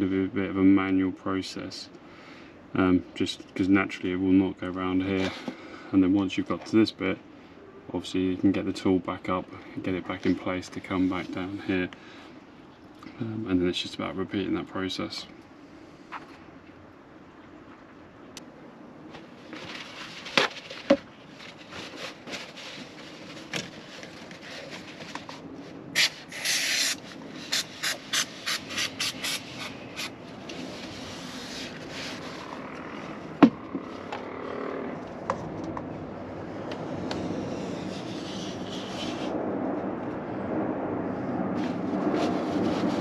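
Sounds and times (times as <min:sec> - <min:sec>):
paper towel rustling: 0:19.2 - 0:25.4, 0:30.3 - 0:33.2
aerosol spray hissing: 0:26.0 - 0:30.1.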